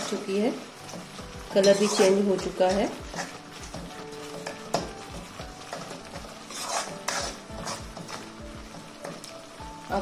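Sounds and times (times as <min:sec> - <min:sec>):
sauce sizzling softly: 0:00.0 - 0:10.0
spoon scraping a pan: 0:00.8 - 0:04.9, 0:05.6 - 0:08.3.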